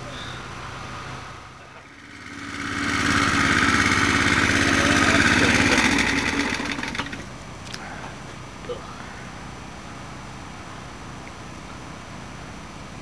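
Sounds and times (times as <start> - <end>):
small engine running: 1.8 - 7.3.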